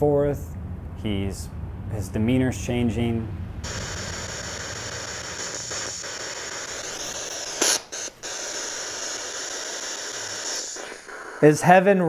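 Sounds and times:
microphone hiss: 1.1s - 12.0s
short sharp burst: 3.6s - 11.9s.

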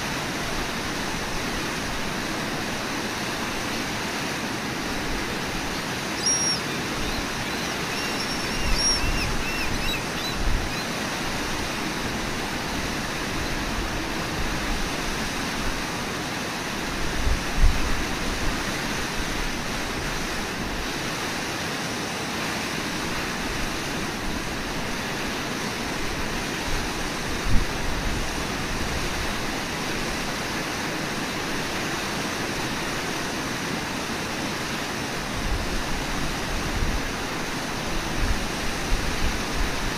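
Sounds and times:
whitewater rushing over rapids: 0.0s - 39.9s.

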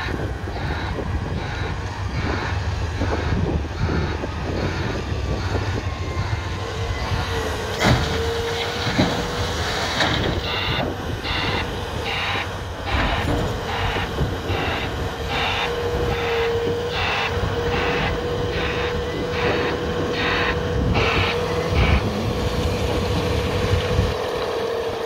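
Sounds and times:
excavator diesel engine and hydraulics: 0.0s - 25.0s
short steady whine: 10.2s - 24.1s.

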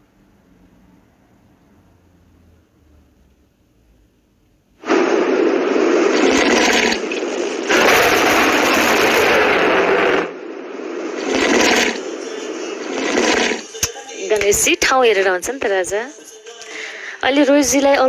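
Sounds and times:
loud noisy gift animation effect: 4.8s - 14.3s.

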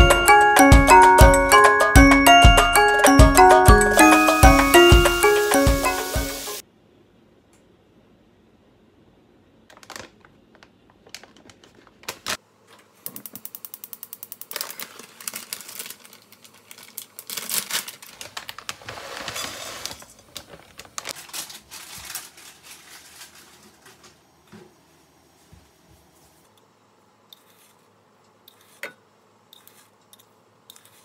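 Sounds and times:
dried fish rattling in a wok: 20.8s - 23.8s.

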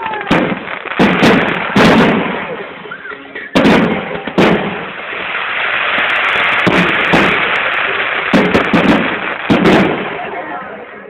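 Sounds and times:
fireworks bangs and crackling: 0.0s - 11.0s.

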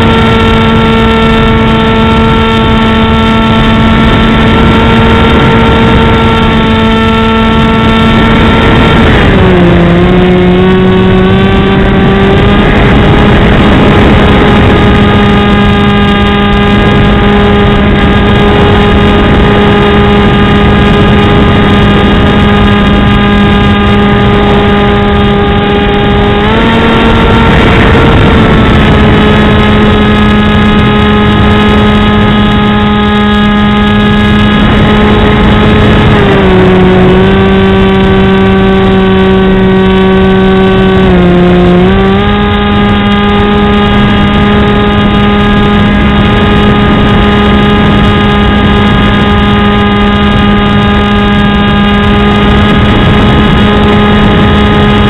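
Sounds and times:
electric motor and propeller drone: 0.0s - 55.0s.

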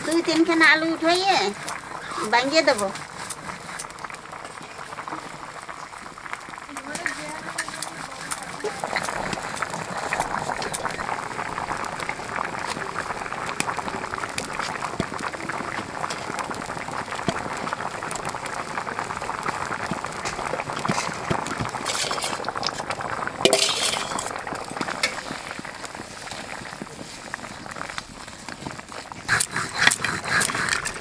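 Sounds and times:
pot boiling and bubbling: 0.0s - 31.0s
metal spoon scraping steel bowl: 6.9s - 10.9s, 21.8s - 22.5s, 23.5s - 24.3s.

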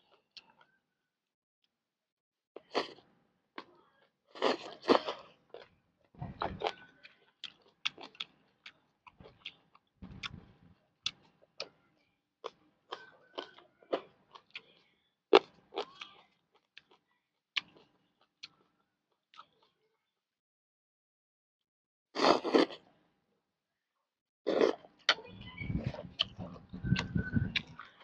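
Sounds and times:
close chewing with lip smacks: 6.4s - 11.8s, 12.4s - 17.0s, 17.6s - 18.7s, 24.5s - 28.0s.

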